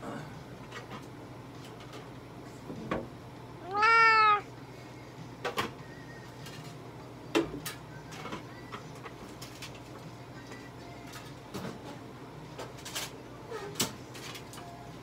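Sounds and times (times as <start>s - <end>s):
cat meowing: 3.6s - 4.5s.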